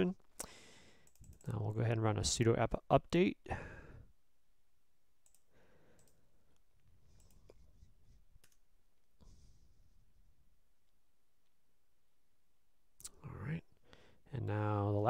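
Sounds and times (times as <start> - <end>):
computer mouse and keyboard clicks: 1.0 - 1.6.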